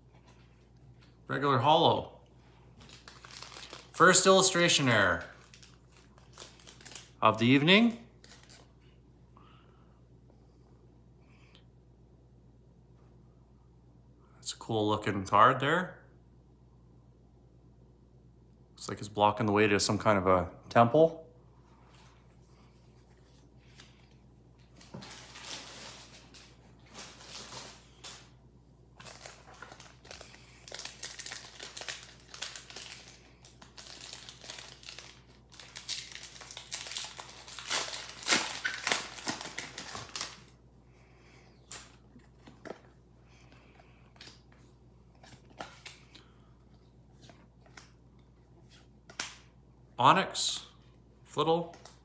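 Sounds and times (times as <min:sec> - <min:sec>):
foil wrapper crinkling and tearing: 0:02.8 - 0:07.5, 0:29.0 - 0:40.6.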